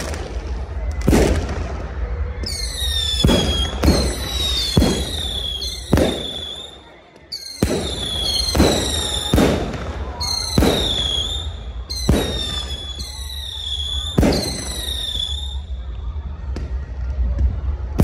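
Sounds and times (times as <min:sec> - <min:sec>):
firework bangs: 0:00.0 - 0:15.8
firework whistles: 0:00.0 - 0:16.8.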